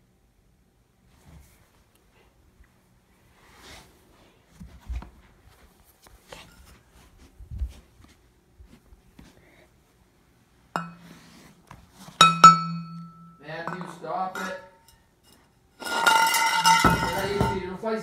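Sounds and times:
steady hum: 0:00.0 - 0:18.0
soft thumps and rustles: 0:03.6 - 0:09.4
footsteps: 0:04.5 - 0:09.4, 0:15.4 - 0:18.0
ringing metallic clink: 0:10.8 - 0:11.0, 0:12.2 - 0:15.0, 0:15.8 - 0:17.5.

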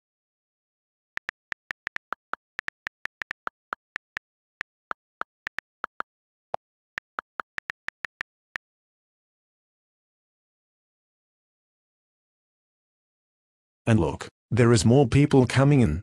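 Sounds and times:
on-screen keyboard key clicks: 0:01.2 - 0:04.2, 0:07.0 - 0:08.3.

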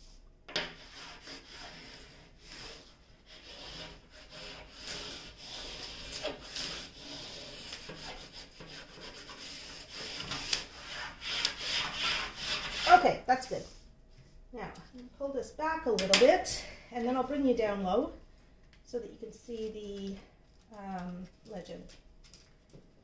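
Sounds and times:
hand tool scraping and rubbing: 0:00.8 - 0:13.1.

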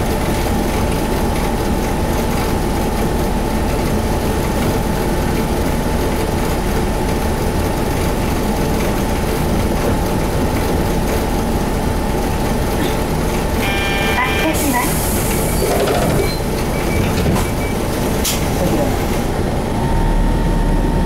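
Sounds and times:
bus diesel engine idling: 0:00.0 - 0:21.0.

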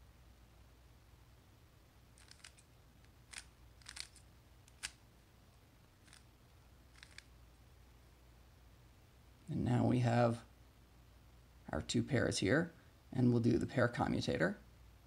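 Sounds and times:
puzzle cube plastic clicks: 0:02.2 - 0:05.0, 0:06.0 - 0:06.3, 0:06.9 - 0:07.3.

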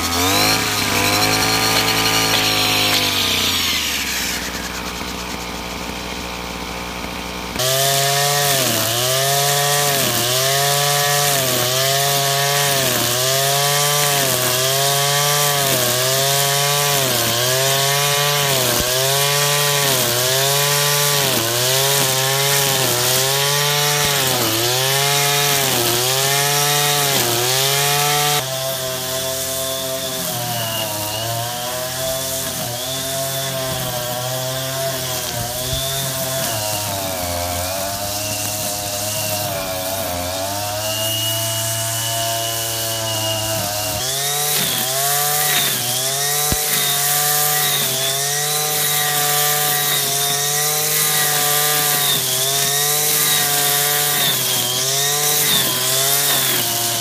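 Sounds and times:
brush cutter engine running: 0:00.0 - 0:57.0.

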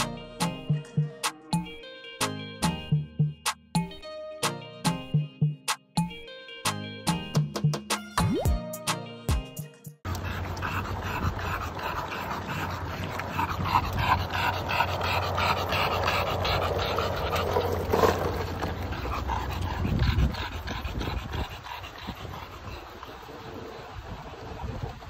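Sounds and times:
dog panting: 0:10.1 - 0:24.0
skateboard wheels rolling on asphalt: 0:15.2 - 0:19.6.

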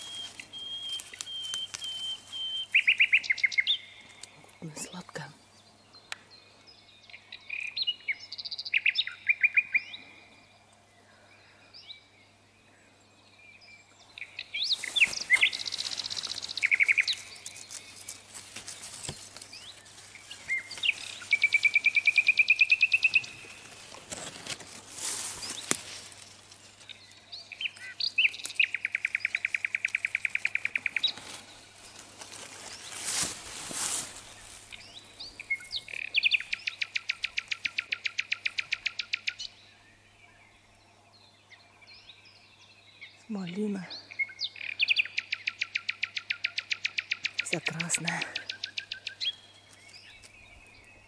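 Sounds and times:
leaves rustling: 0:00.0 - 0:05.4, 0:14.2 - 0:39.4, 0:47.3 - 0:51.0
songbirds trilling: 0:00.0 - 0:51.0.

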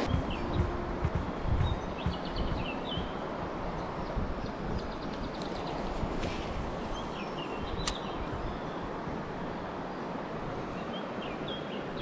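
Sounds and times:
bird chirping: 0:00.0 - 0:05.8
river water rushing: 0:00.0 - 0:12.0
sharp click: 0:07.8 - 0:08.1.

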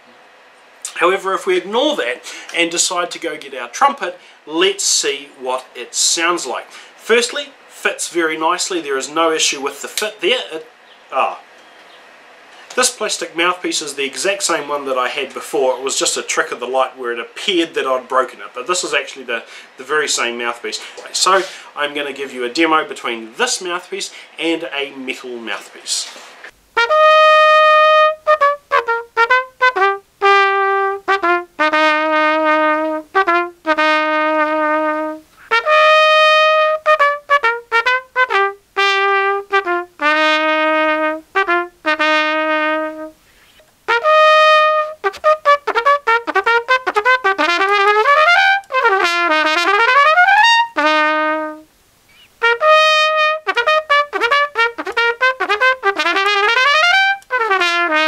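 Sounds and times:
trumpet playing: 0:26.7 - 0:51.7, 0:52.4 - 0:58.0.

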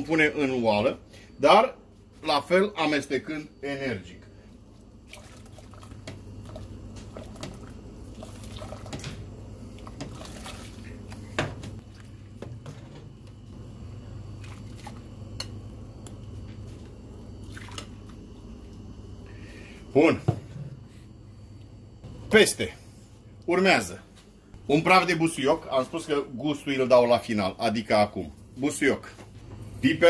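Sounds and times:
steady low hum: 0:00.0 - 0:30.0
liquid sloshing and dripping: 0:04.6 - 0:13.4, 0:14.3 - 0:18.8.

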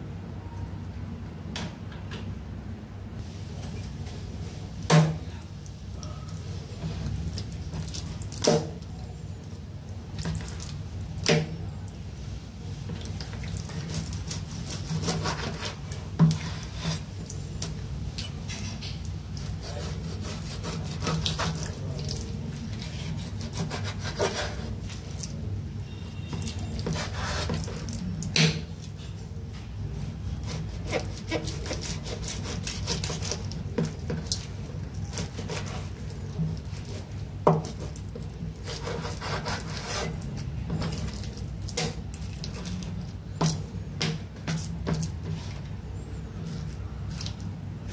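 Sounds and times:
knife slicing meat on wooden board: 0:13.8 - 0:17.1, 0:19.4 - 0:21.8, 0:22.6 - 0:24.8, 0:26.3 - 0:27.8, 0:30.3 - 0:34.3, 0:35.1 - 0:35.9, 0:38.6 - 0:41.2.

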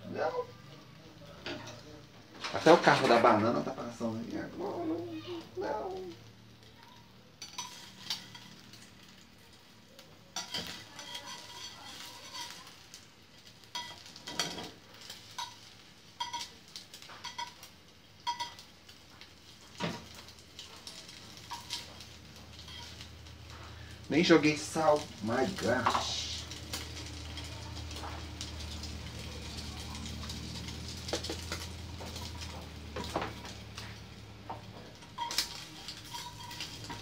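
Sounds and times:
egg sizzling in pan: 0:00.0 - 0:37.0
metal spoon scraping frying pan: 0:07.4 - 0:09.2, 0:10.3 - 0:24.0, 0:24.6 - 0:34.0, 0:34.9 - 0:37.0.

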